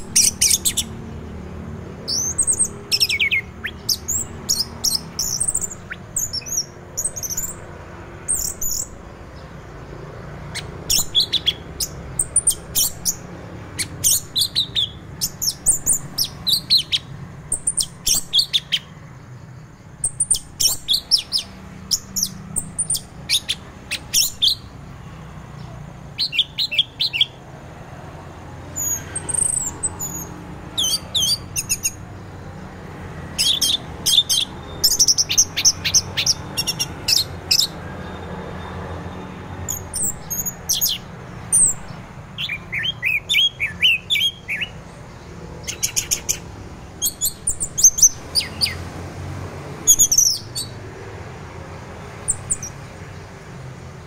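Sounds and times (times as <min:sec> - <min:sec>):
bird singing warbling notes: 0:02.0 - 0:07.6.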